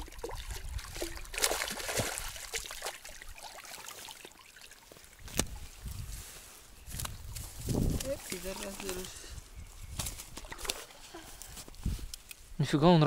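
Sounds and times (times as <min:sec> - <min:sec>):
shallow water splashing: 0:00.0 - 0:05.8, 0:07.9 - 0:09.3, 0:10.2 - 0:11.2.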